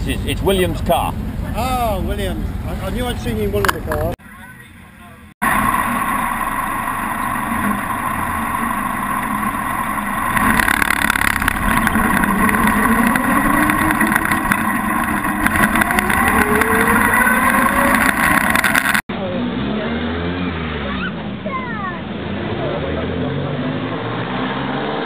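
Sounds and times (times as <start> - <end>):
car engine running: 0.0 - 4.2, 5.0 - 19.1.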